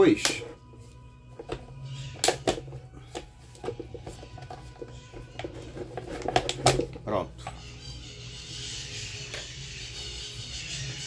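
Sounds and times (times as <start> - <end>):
plastic and metal parts clicking: 2.2 - 7.0.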